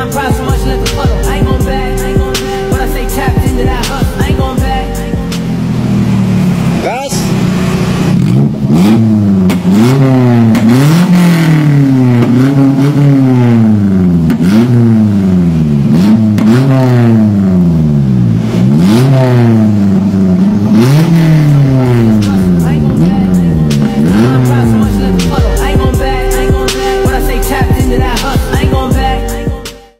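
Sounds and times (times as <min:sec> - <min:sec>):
car engine revving in quick blips: 0:07.4 - 0:29.0.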